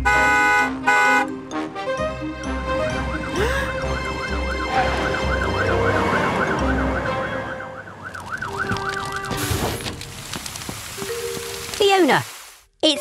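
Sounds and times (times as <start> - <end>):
cartoon fire engine siren wailing: 2.7 - 9.3.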